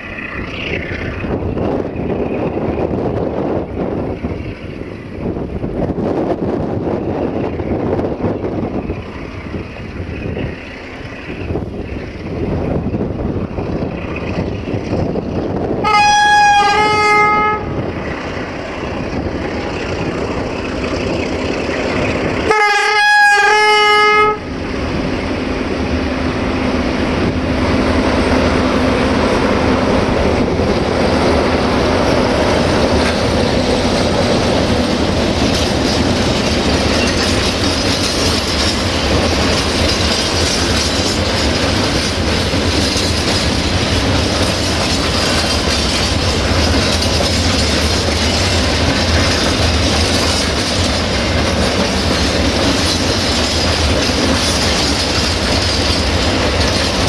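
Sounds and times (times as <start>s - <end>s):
locomotive engine running: 0.0s - 57.0s
locomotive horn blasts: 15.8s - 17.8s, 22.4s - 24.5s
freight wagons clickety-clack: 32.4s - 57.0s.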